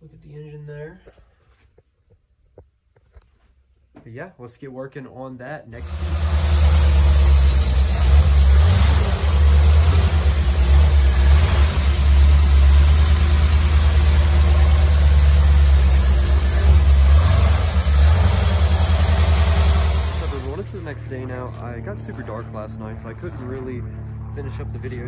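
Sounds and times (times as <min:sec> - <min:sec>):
car engine running: 0:05.8 - 0:23.8.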